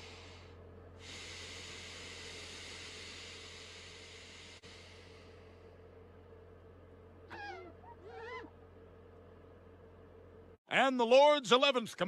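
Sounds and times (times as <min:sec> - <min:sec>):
wavering cries: 0:07.3 - 0:08.6.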